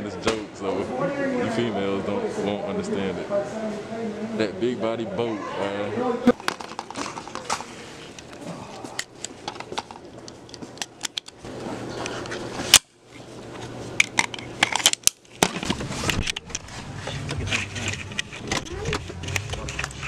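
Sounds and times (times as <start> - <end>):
camera handling clicks and knocks: 9.0 - 11.4.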